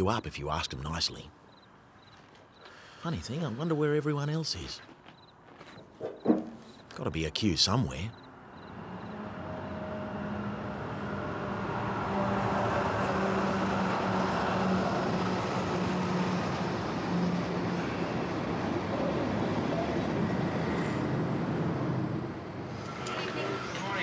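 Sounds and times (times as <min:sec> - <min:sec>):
passenger train rumbling past: 0:08.8 - 0:24.0.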